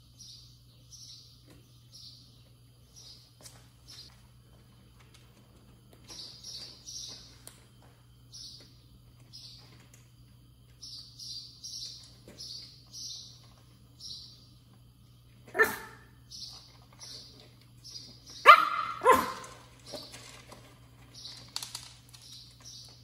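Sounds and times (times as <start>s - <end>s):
puppy barking: 15.5s - 16.1s, 18.4s - 19.6s.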